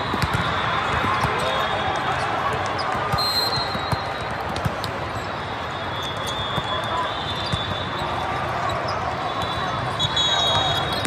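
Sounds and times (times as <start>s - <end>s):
volleyballs thumping: 0.0s - 1.5s, 2.6s - 5.0s
crowd chatter: 0.0s - 11.0s.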